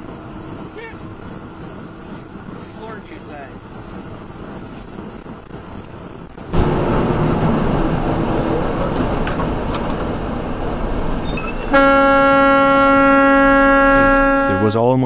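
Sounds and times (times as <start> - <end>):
truck engine and road noise: 0.0 - 15.0
truck horn blast: 11.7 - 14.9.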